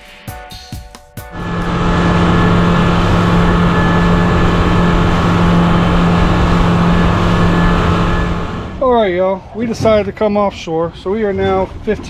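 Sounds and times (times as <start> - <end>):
outboard motor running: 1.3 - 8.9
rushing water noise: 1.4 - 8.7.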